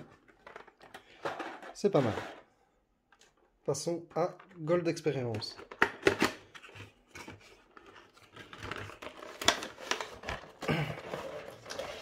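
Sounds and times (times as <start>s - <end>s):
packaging rustling: 5.6s - 12.0s.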